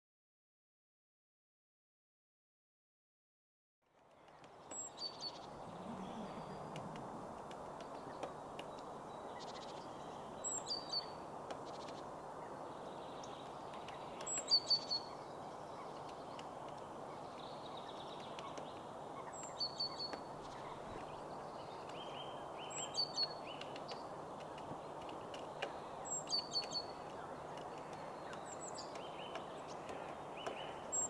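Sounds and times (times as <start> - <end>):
background hiss: 3.9 - 31.0
woodpecker calls: 4.3 - 12.1, 17.8 - 31.0
bill tapping on pine cone: 27.1 - 31.0.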